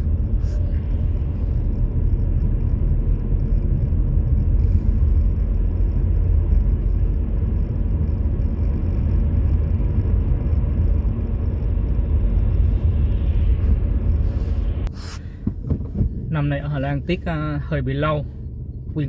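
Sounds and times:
car road and engine rumble: 0:00.0 - 0:19.0
passing car tyre hiss: 0:13.6 - 0:15.4.

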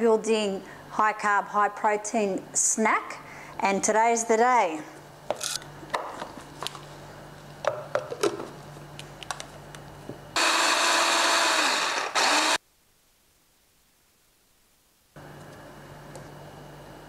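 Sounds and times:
food processor running: 0:10.4 - 0:12.6.

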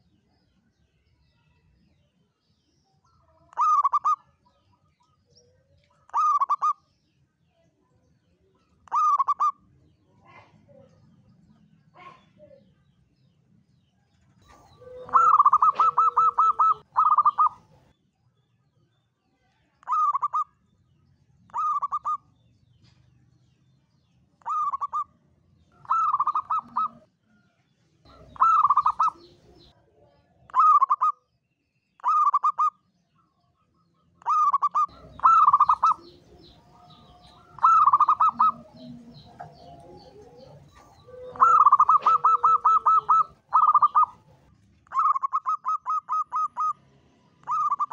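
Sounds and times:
dove cooing: 0:03.5 - 0:04.2, 0:06.1 - 0:06.8, 0:08.9 - 0:09.6, 0:14.4 - 0:17.9, 0:21.5 - 0:22.2, 0:24.4 - 0:25.0, 0:25.8 - 0:27.1, 0:28.1 - 0:29.7, 0:32.0 - 0:32.7, 0:34.2 - 0:46.8, 0:47.4 - 0:47.9.

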